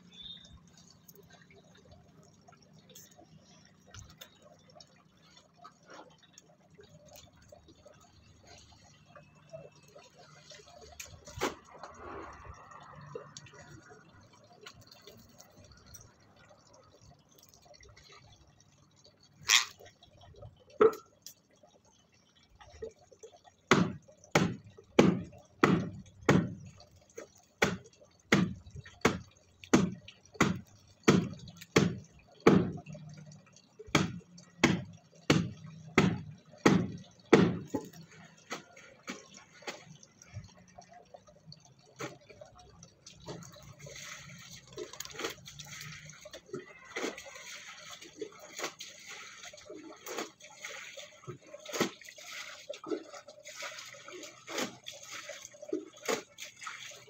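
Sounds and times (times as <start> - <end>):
soft rustle of water: 0.0 - 57.0
birds splashing in water: 41.7 - 57.0.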